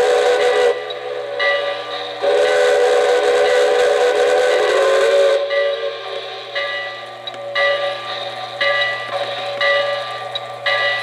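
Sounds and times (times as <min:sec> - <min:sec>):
model train steam whistle: 0:00.0 - 0:06.8.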